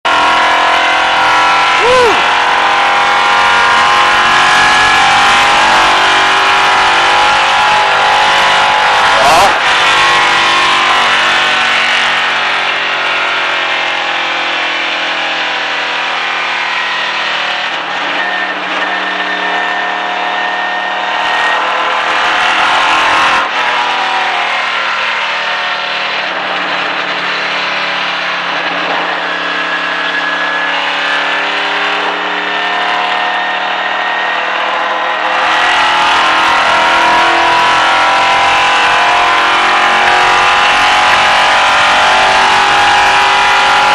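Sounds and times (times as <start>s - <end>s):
car engine running hard: 0.0s - 43.9s.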